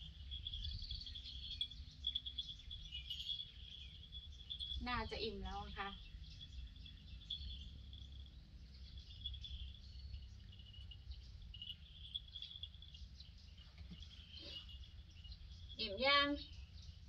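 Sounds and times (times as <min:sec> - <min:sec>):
high-pitched chirping: 0:00.0 - 0:13.2.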